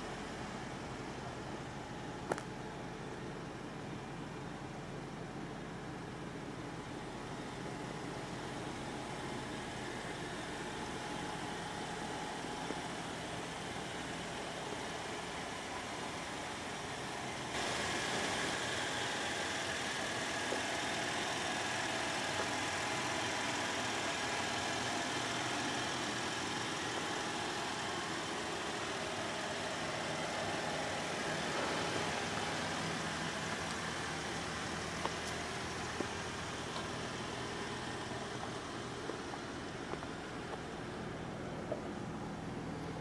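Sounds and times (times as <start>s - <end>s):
vehicle engine hum: 0.0s - 43.0s.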